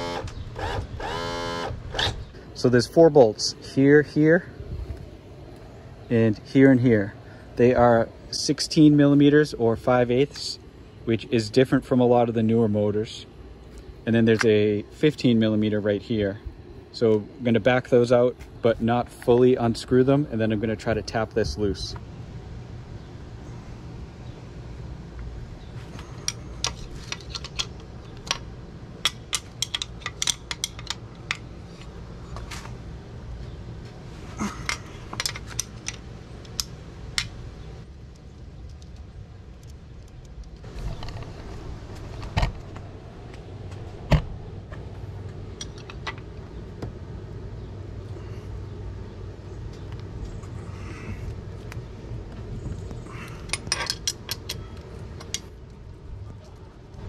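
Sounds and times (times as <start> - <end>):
steady low hum: 0.0 - 57.0
wrench clicking and clinking: 29.0 - 31.5, 53.4 - 55.4.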